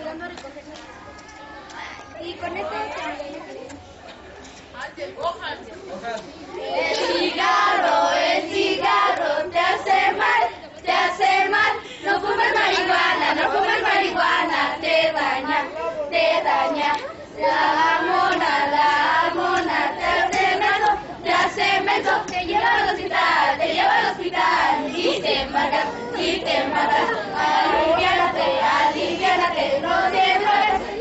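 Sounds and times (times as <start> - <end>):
children singing and chanting: 6.4 - 31.0.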